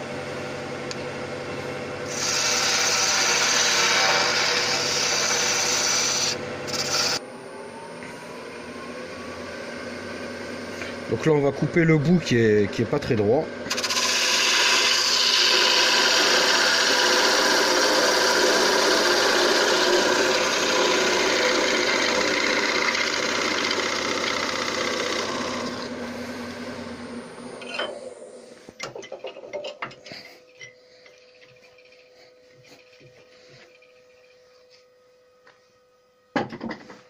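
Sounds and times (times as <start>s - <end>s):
wood lathe tool cutting wood: 2.1s - 7.2s, 13.7s - 28.3s.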